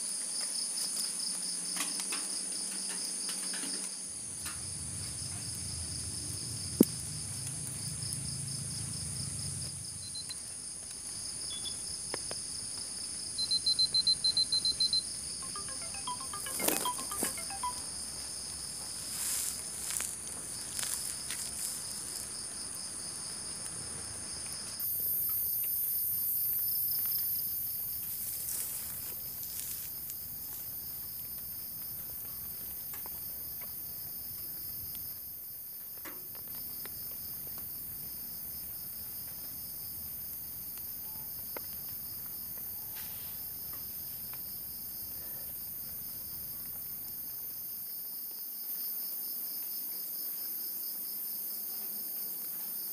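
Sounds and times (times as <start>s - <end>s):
insects trilling: 0.4s - 35.1s.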